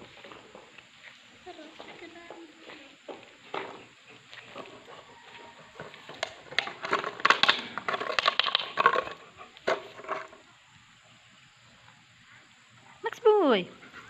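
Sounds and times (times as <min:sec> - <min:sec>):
dog chewing plastic bottle: 0:05.8 - 0:10.2.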